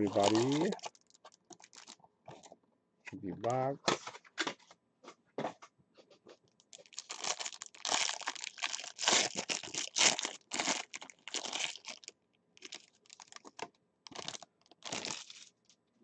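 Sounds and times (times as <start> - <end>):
plastic wrap crinkling: 0.0 - 2.5, 6.5 - 15.6.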